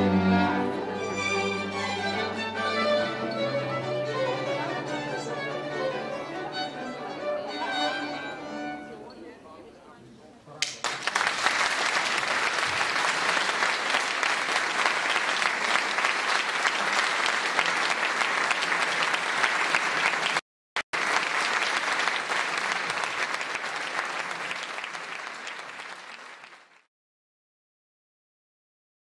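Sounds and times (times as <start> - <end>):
audience applauding: 10.6 - 26.9.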